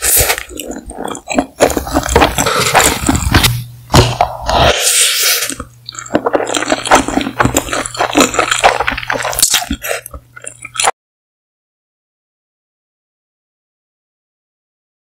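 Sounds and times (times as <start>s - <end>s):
slurping and chewing noodles: 0.0s - 11.0s.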